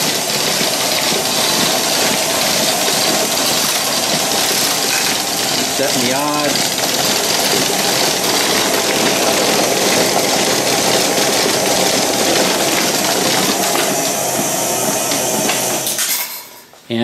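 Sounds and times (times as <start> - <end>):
slot machine mechanical clatter: 0.0 - 16.6.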